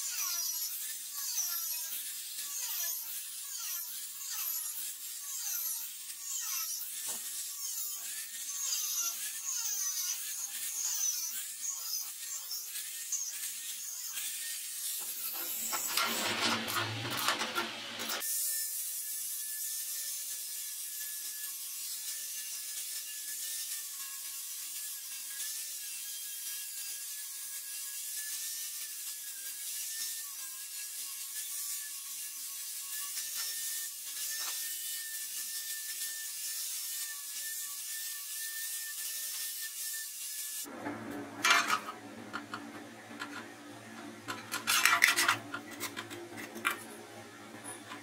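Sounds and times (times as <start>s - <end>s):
disc grinding steel: 0.1s - 18.2s, 40.6s - 48.0s
angle grinder whine: 15.0s - 18.2s, 40.6s - 48.0s
sheet metal scraping: 15.2s - 18.2s, 40.7s - 48.0s.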